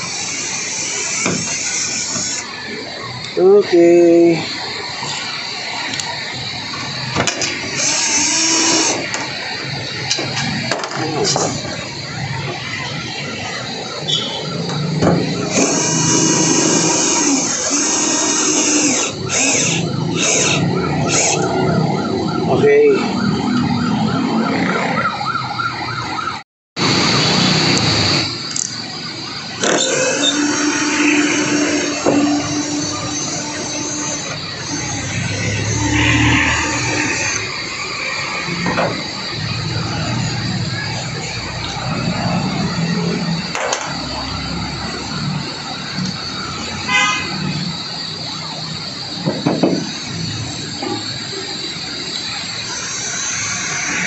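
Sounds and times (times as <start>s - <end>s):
cordless drill driving screws: 15.5s - 21.5s, 29.6s - 35.1s
wavering repeating tone: 28.2s - 38.7s.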